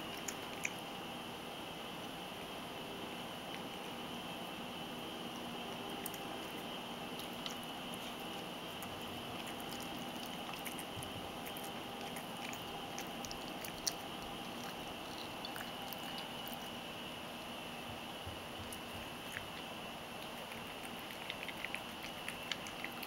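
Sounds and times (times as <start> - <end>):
cat crunching dry kibble: 5.4 - 16.8.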